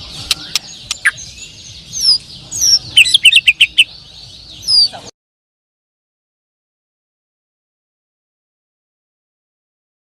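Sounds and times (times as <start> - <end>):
songbird whistles: 0.2 - 3.9.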